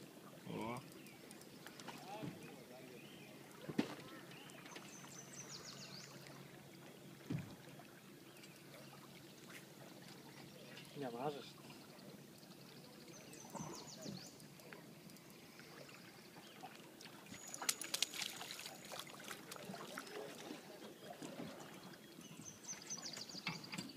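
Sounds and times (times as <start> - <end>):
fish thrashing and splashing: 16.9 - 21.7.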